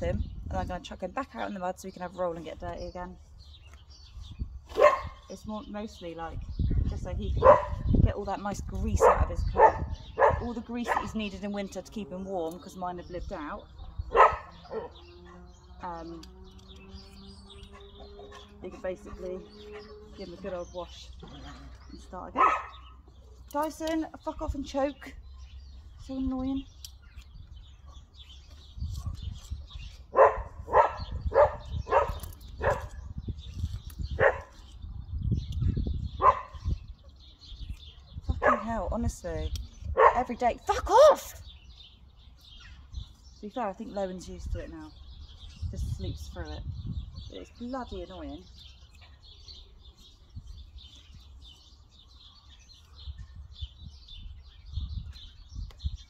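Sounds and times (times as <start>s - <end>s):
birds chirping: 0.0s - 56.0s
dog barking: 4.8s - 5.2s, 7.4s - 7.9s, 9.0s - 11.1s, 14.1s - 15.0s, 22.4s - 22.8s, 30.1s - 32.9s, 36.2s - 36.6s, 40.0s - 40.3s.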